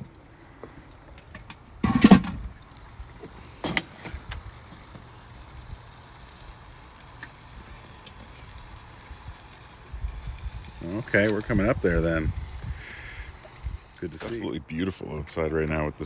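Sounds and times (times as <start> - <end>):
metal grill lid clanking: 1.8 - 2.5.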